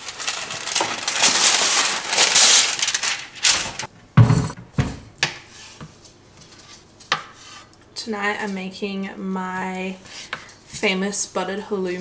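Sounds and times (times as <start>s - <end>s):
baking paper crinkling and tearing: 0.0s - 3.9s.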